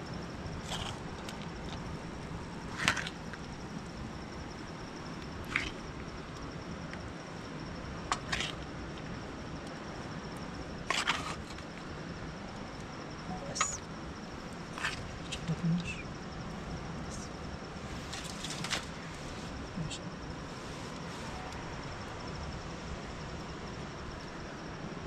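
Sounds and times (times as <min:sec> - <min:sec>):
steady hiss: 0:11.8 - 0:25.0.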